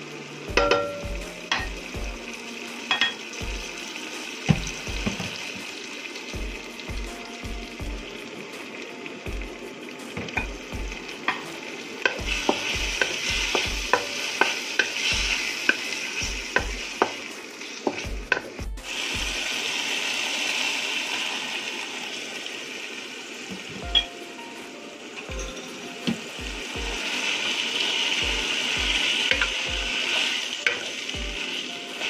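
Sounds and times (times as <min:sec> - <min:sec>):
food sizzling in a frying pan: 0:00.0 - 0:32.0.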